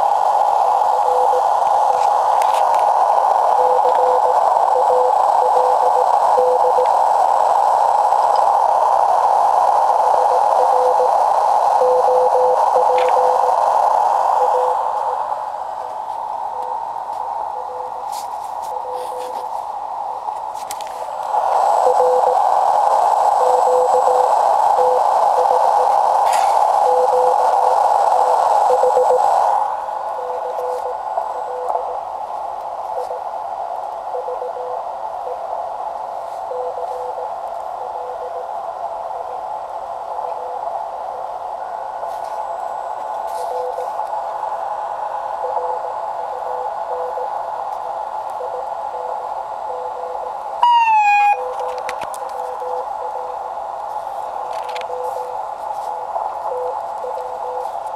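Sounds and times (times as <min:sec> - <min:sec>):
radio band hiss: 0:00.0 - 0:57.9
morse code tone: 0:00.9 - 0:02.0, 0:03.4 - 0:07.0, 0:09.9 - 0:15.3, 0:16.5 - 0:19.6, 0:21.7 - 0:22.5, 0:23.3 - 0:29.5, 0:30.1 - 0:32.1, 0:32.9 - 0:33.3, 0:34.1 - 0:35.5, 0:36.4 - 0:38.5, 0:42.4 - 0:44.0, 0:45.4 - 0:47.4, 0:48.4 - 0:53.5, 0:54.8 - 0:57.8.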